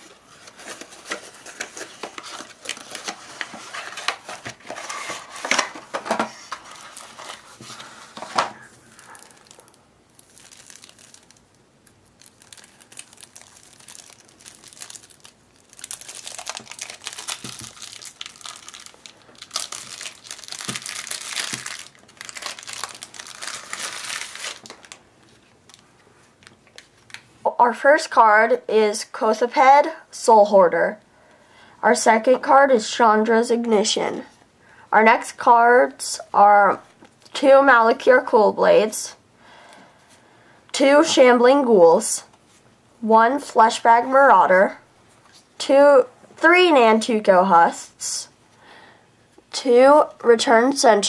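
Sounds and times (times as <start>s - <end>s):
packaging crinkling and tearing: 0.0s - 27.3s.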